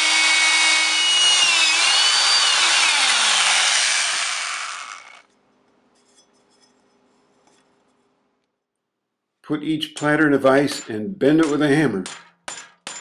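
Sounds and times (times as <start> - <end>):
power drill boring through metal: 0.0 - 5.2.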